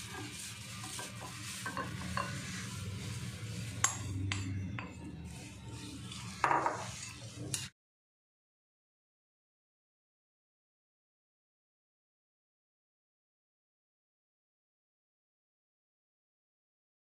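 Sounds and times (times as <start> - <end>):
spoon scraping in glass bowl: 0.0 - 7.7.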